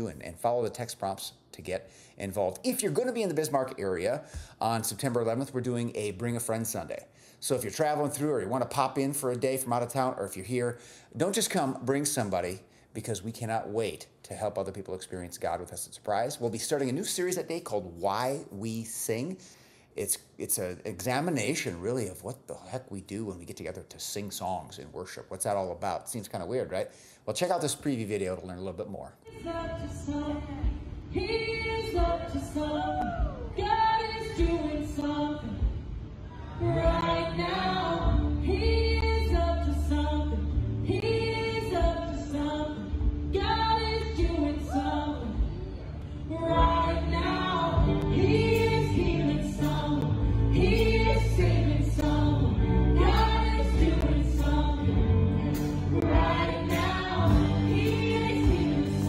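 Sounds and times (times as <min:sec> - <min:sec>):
low bass: 0:35.5 - 0:59.0
group singing worship song: 0:36.4 - 0:39.6, 0:46.3 - 0:59.0.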